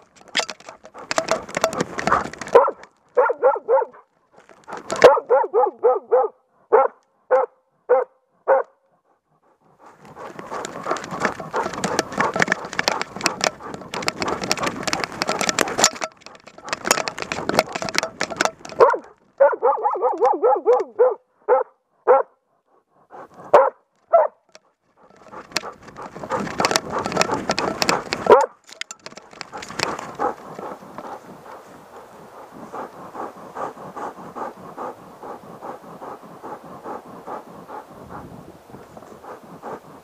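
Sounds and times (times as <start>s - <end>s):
dog yelping: 1.0s - 4.0s, 4.7s - 8.7s, 10.2s - 22.4s
dog barking: 2.5s - 4.1s, 4.8s - 8.9s, 18.6s - 22.4s, 23.5s - 24.4s, 27.8s - 28.6s.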